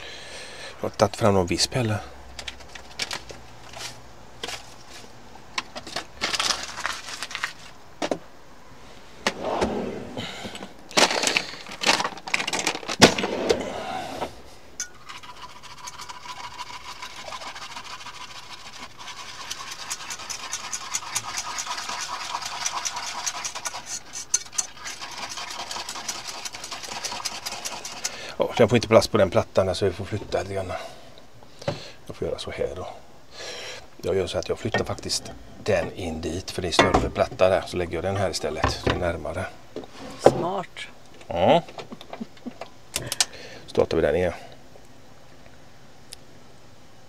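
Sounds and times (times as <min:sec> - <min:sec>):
metal whisk scraping a pan: 0:14.8 - 0:28.2.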